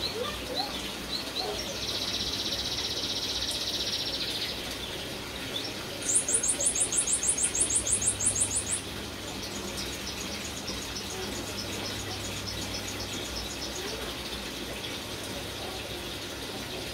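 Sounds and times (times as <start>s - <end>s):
bird trilling: 6.0s - 8.8s.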